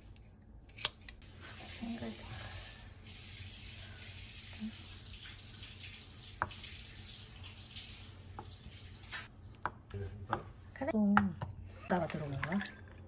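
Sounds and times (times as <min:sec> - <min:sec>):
running tap water: 0:01.2 - 0:09.3.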